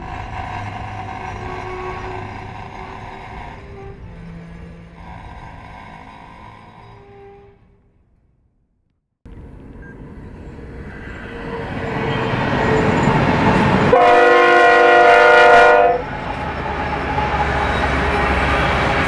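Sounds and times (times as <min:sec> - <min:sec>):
freight train rumbling: 0:00.0 - 0:08.2, 0:09.3 - 0:19.0
train horn blast: 0:01.4 - 0:03.0, 0:07.0 - 0:07.8, 0:13.9 - 0:16.1.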